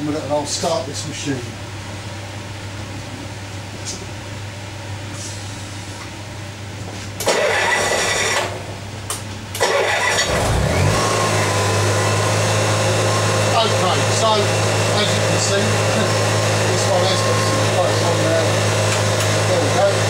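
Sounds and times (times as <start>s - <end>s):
generator engine cranking and running: 7.2s - 8.8s, 9.5s - 20.0s.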